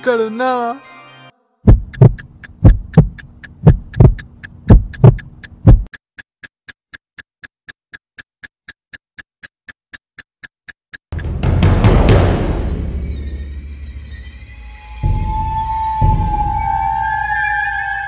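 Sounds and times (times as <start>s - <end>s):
heartbeat thumps: 1.7s - 6.0s
quick even ticking: 1.7s - 11.4s
scary music: 11.2s - 18.0s.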